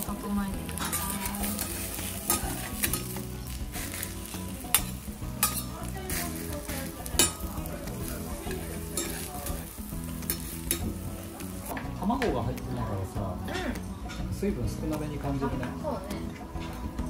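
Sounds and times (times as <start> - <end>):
food sizzling on griddle: 0.0 - 13.4
metal spatulas clacking on iron: 0.8 - 3.2, 4.7 - 5.8, 7.1 - 7.5, 8.5 - 9.6, 10.2 - 11.0.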